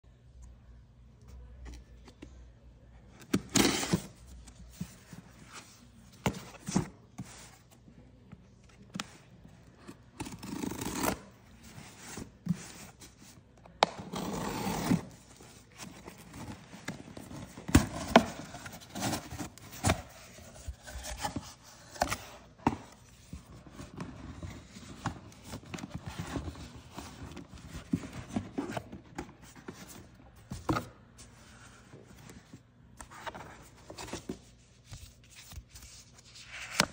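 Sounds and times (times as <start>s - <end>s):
cardboard box handled: 10.2s - 35.3s.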